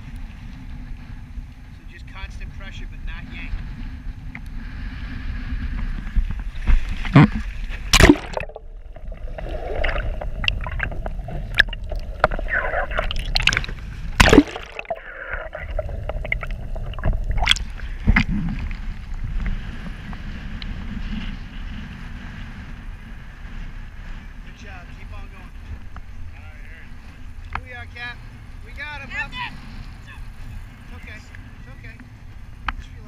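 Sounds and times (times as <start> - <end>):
steady low rumble: 0.0 - 33.0
waves splashing against camera: 0.0 - 33.0
underwater gurgling: 5.7 - 21.2
water slapping: 6.2 - 20.8.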